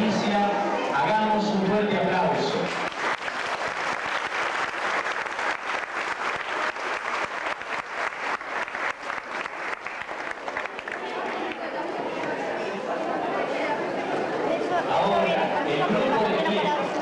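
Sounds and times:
crowd applauding: 0:02.6 - 0:12.4.

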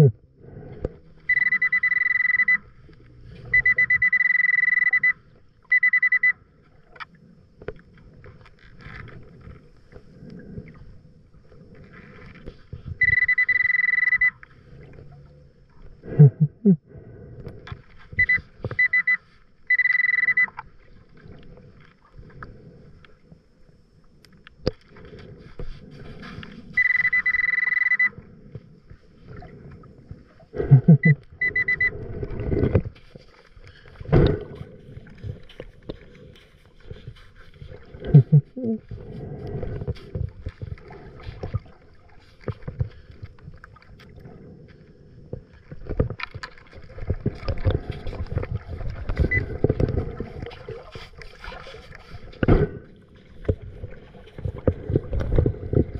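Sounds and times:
metal detector alert tone: 0:01.3 - 0:02.7, 0:03.5 - 0:06.4, 0:13.0 - 0:14.4, 0:18.2 - 0:20.6, 0:26.8 - 0:28.2, 0:30.7 - 0:32.0.

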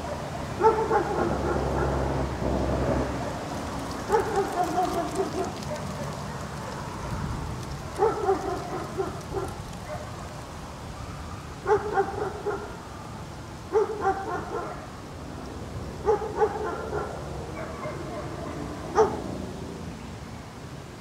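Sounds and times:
dog barking: 0:00.0 - 0:02.0, 0:04.1 - 0:06.4, 0:07.9 - 0:10.2, 0:11.6 - 0:12.8, 0:13.7 - 0:14.9, 0:16.0 - 0:19.2.

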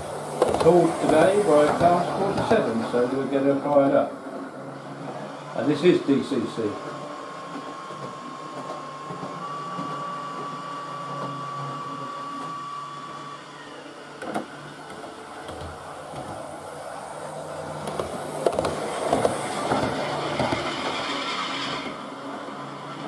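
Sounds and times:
model train wheels clicking on track: 0:00.0 - 0:03.0
model locomotive high whine: 0:00.0 - 0:23.0.

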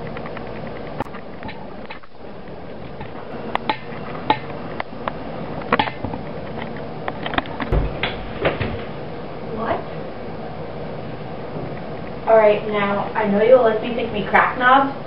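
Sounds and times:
steady background hiss: 0:00.0 - 0:15.0
low thump: 0:07.7 - 0:08.9.

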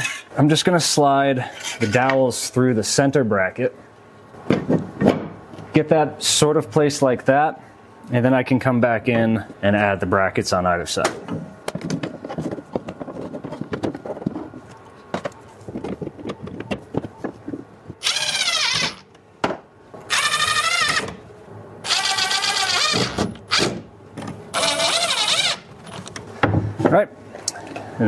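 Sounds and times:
cordless drill driving screws: 0:18.0 - 0:19.0, 0:20.1 - 0:21.2, 0:21.8 - 0:23.8, 0:24.6 - 0:25.6.

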